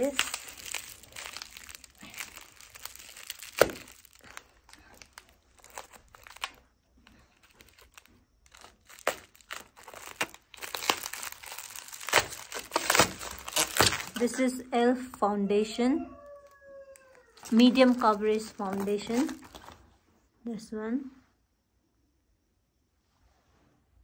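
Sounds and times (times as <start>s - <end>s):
bubble wrap crinkling: 0.0s - 14.6s, 16.3s - 19.9s.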